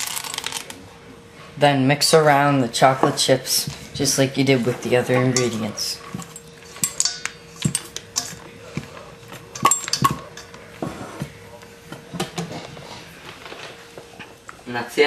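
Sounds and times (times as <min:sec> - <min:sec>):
whisk clinking against metal bowl: 0:05.1 - 0:08.9.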